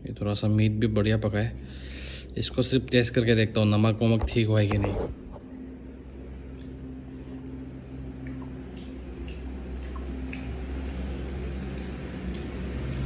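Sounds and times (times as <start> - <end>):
low hum: 0.0 - 13.0
wet mouth clicks and smacks: 8.2 - 13.0.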